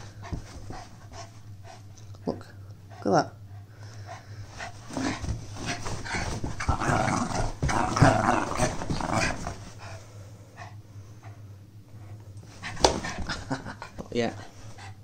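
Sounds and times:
dog growling: 0:04.6 - 0:10.0.

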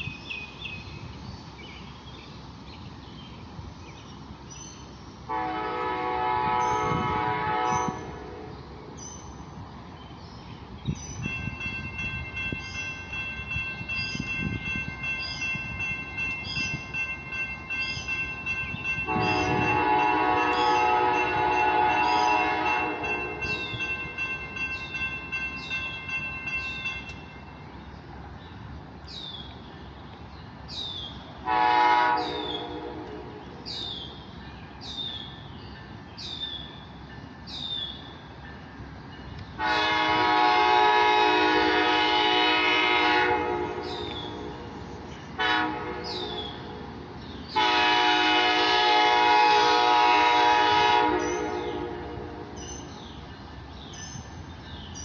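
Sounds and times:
locomotive air horn blasts: 0:05.3 - 0:08.5, 0:19.0 - 0:23.8, 0:31.4 - 0:33.6, 0:39.6 - 0:44.7, 0:45.4 - 0:46.8, 0:47.5 - 0:52.7.

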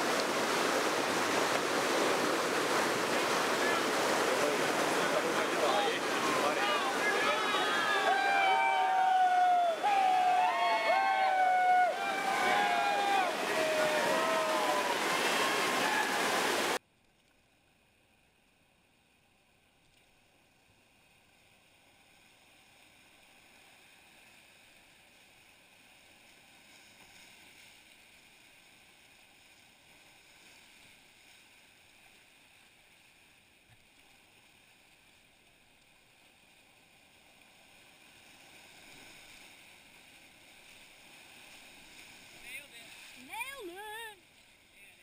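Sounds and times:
river rapids rushing: 0:00.0 - 0:16.8, 0:37.9 - 0:44.1.

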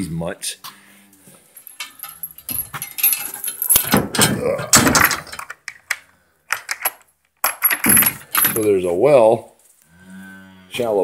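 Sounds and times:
metallic clinking and jangling: 0:01.5 - 0:04.3, 0:06.5 - 0:08.7
knocks and rustling: 0:01.6 - 0:08.7.

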